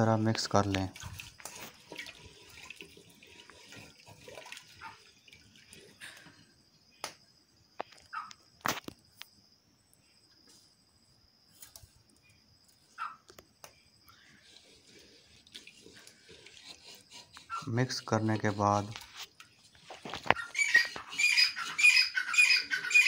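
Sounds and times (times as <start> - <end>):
liquid sloshing in pot: 0.6 - 6.2, 14.2 - 21.8.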